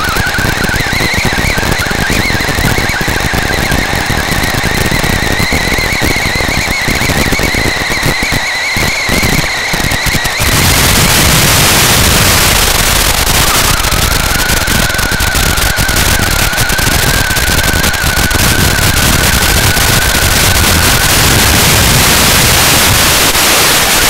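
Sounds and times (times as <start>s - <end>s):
electric motor whining: 0.0s - 24.0s
loud static hiss: 0.0s - 24.0s.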